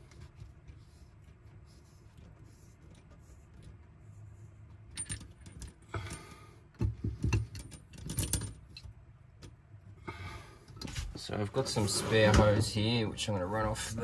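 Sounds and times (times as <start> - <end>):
handling rattles: 4.7 - 9.6.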